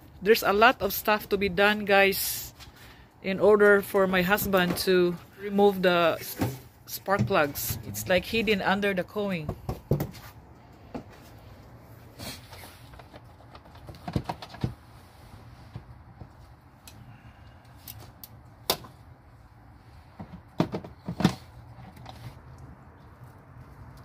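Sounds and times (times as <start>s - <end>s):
plastic parts clicking and knocking: 12.9s - 14.8s, 20.2s - 22.2s.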